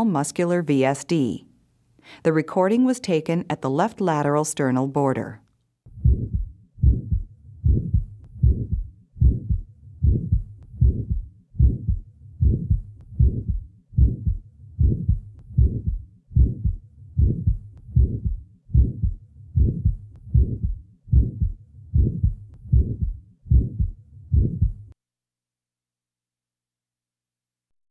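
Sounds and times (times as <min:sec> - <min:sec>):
heart murmur: 0:05.9 - 0:25.0
heartbeat through stethoscope: 0:05.9 - 0:25.0.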